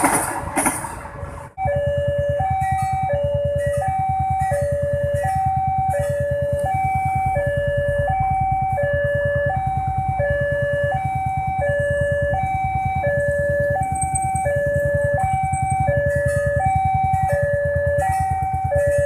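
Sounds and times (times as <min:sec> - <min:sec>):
level crossing two-tone alarm: 0:01.6 - 0:19.0.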